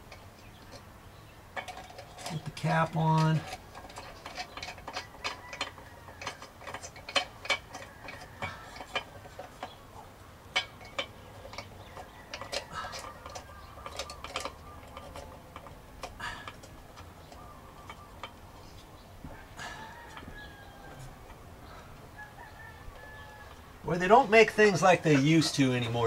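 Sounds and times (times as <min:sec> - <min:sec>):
metal cap clicking and scraping: 0:01.5 - 0:09.9, 0:10.5 - 0:19.0.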